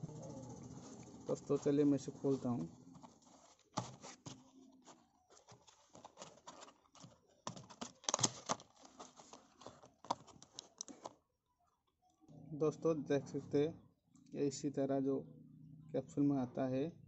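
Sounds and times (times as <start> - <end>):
cardboard carton crackling: 2.2 - 11.1.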